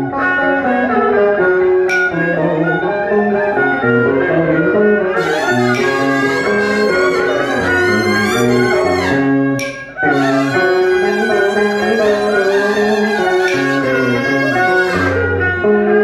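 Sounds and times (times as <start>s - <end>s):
ritual music ensemble with sliding notes: 0.0s - 16.0s.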